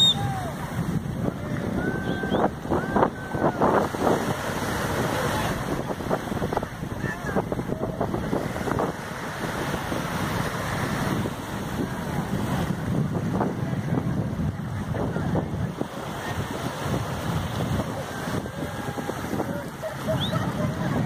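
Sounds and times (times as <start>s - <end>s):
voices: 0.0s - 9.4s, 11.5s - 21.0s
waves washing: 0.0s - 21.0s
wind buffeting microphone: 0.0s - 21.0s.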